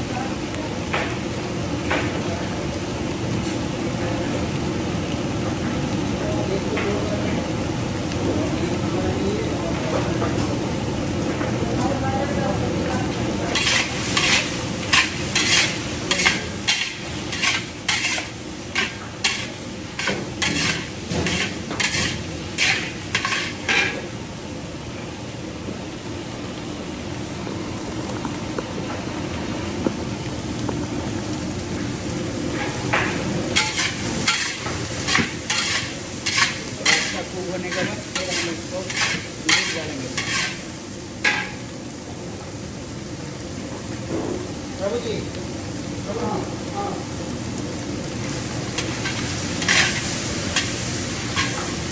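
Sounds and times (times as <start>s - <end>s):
vegetables sizzling in a wok: 0.0s - 51.9s
metal spatula scraping a pan: 13.5s - 24.0s, 33.6s - 40.6s, 48.8s - 51.8s.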